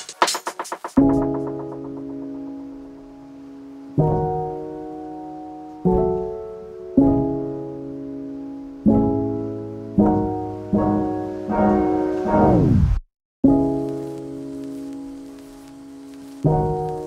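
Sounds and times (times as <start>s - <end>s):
slow piano chords: 0.9s - 12.6s, 13.4s - 17.0s.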